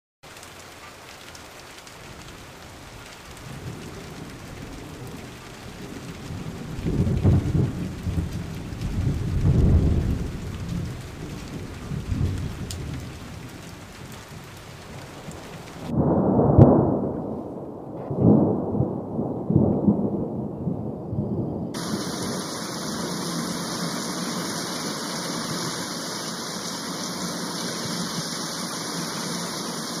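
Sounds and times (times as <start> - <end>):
steady hiss: 21.8 - 30.0.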